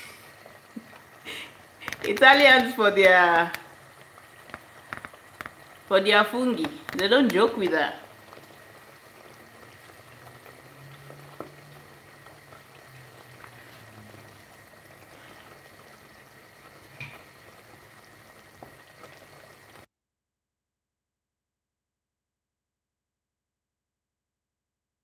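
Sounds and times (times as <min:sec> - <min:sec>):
sauce bubbling in a pot: 0:00.0 - 0:19.9.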